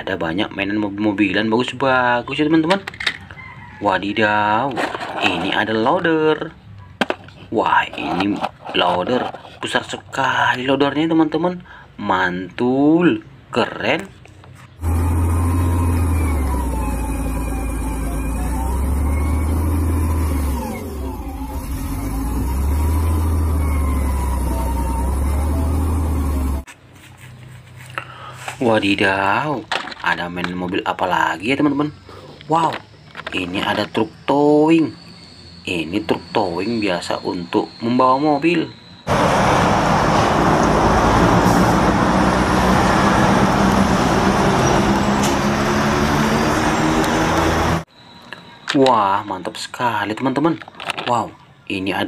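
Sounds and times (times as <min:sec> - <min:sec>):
diesel engine working under load: 0:14.8 - 0:26.7, 0:38.8 - 0:48.2
engine whine: 0:14.8 - 0:26.7, 0:38.7 - 0:48.8.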